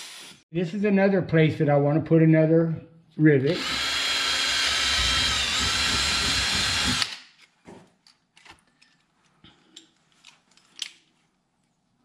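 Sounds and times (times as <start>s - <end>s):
cordless drill whining: 3.5s - 7.1s.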